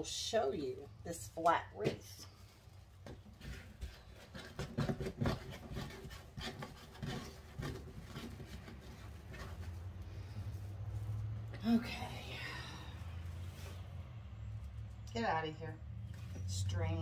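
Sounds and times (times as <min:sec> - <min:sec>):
mesh rustling and scraping: 0:02.3 - 0:12.1, 0:12.8 - 0:14.9.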